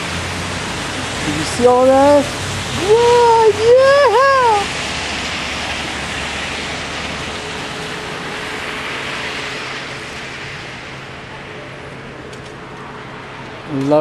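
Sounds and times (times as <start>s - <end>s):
rushing outdoor hiss: 0.0s - 14.0s
high excited voice cheering: 2.8s - 4.7s.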